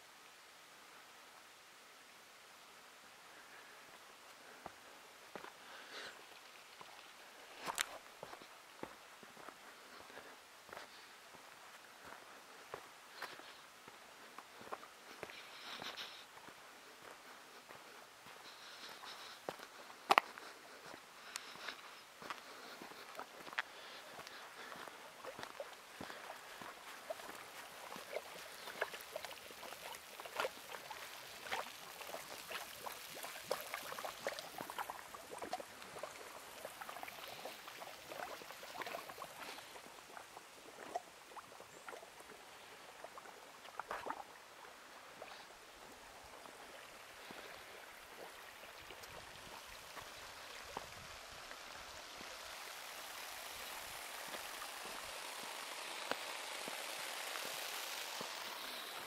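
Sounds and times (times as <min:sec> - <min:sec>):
water trickling over rock: 0:17.2 - 0:59.0.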